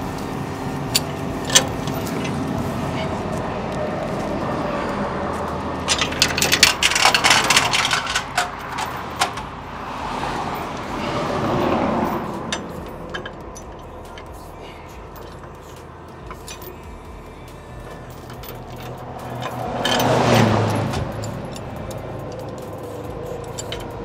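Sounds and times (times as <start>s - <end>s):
tow chains clanking: 0.0s - 3.4s, 4.2s - 24.0s
rush of noise: 0.0s - 24.0s.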